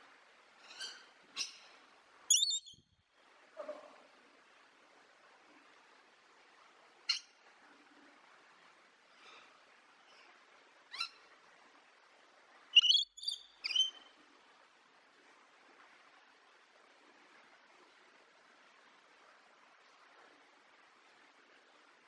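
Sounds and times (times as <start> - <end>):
faint steady hiss: 0.0 - 22.0
parrot high calls: 2.3 - 2.8, 12.8 - 14.0.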